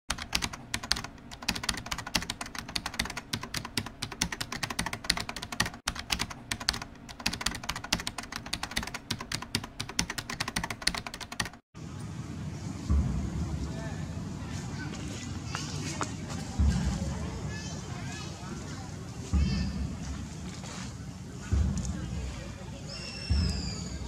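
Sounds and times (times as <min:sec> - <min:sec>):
rapid keyboard typing: 0:00.1 - 0:11.6.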